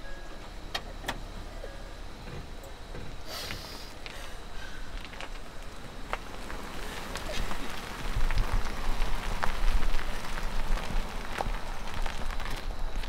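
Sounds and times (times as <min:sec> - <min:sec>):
low engine rumble: 0:00.0 - 0:13.0
short hiss: 0:03.2 - 0:04.3.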